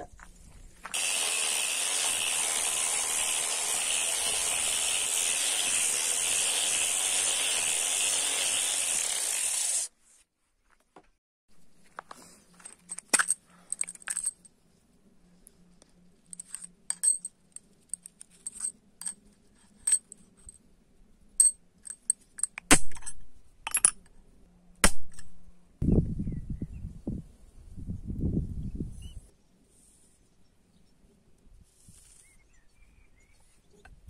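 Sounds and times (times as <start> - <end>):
metal pins clinking: 16.3 - 20.5, 21.4 - 24.1.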